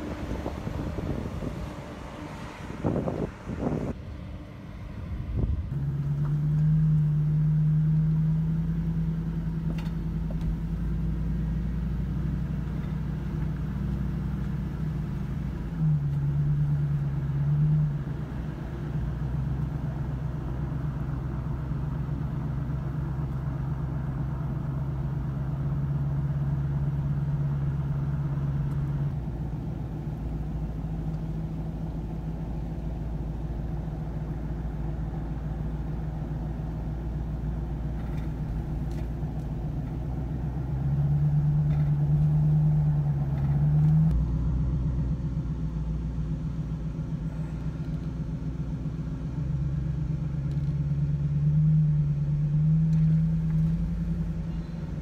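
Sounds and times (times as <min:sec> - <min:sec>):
car engine and tyre noise: 0:00.0 - 0:55.0.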